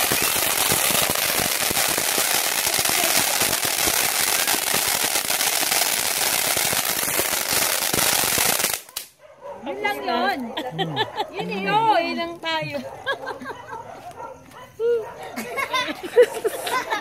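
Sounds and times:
firework hissing and crackling: 0:00.0 - 0:09.1.

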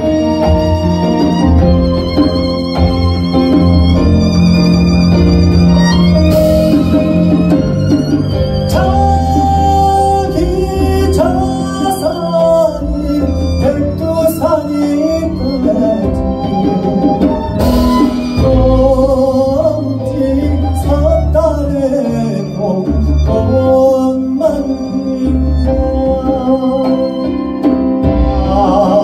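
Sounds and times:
double bass: 0:00.0 - 0:29.0
live band: 0:00.0 - 0:29.0
man singing into a microphone: 0:08.6 - 0:17.2, 0:18.3 - 0:29.0.

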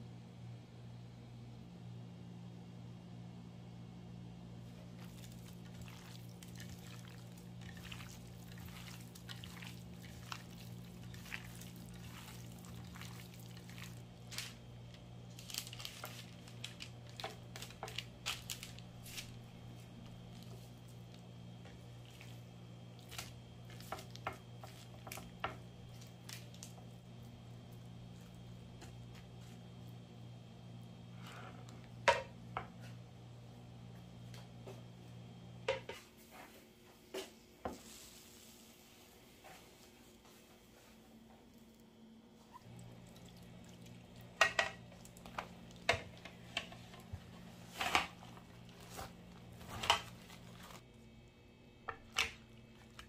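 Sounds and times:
steady low hum: 0:00.0 - 0:53.0
raw meat squishing: 0:05.0 - 0:29.9, 0:42.6 - 0:50.9.

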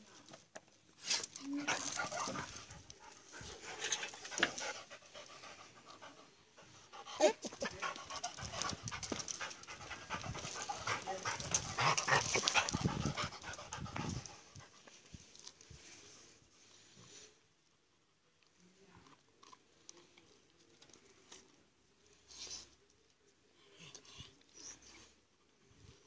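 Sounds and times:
dog panting: 0:01.6 - 0:14.9.

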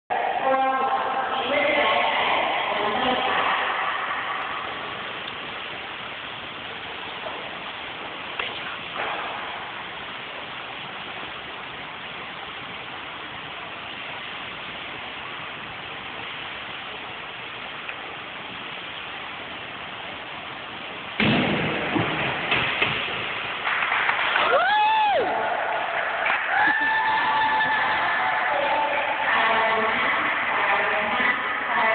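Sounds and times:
indoor hall ambience hiss: 0:00.1 - 0:31.9
spectators cheering and clapping: 0:23.5 - 0:29.4
person whooping: 0:24.4 - 0:28.5.

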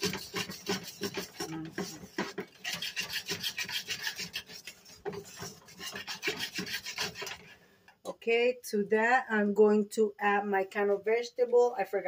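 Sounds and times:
whisk scraping a metal pot: 0:00.0 - 0:07.6.

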